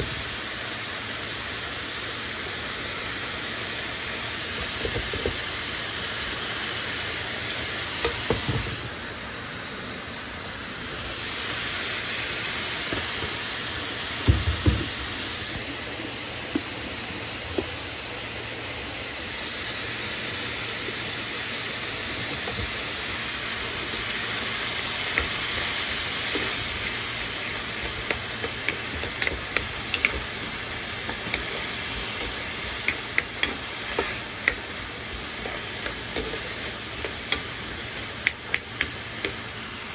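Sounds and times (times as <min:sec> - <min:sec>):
corn sizzling in frying pan: 0:00.0 - 0:39.9.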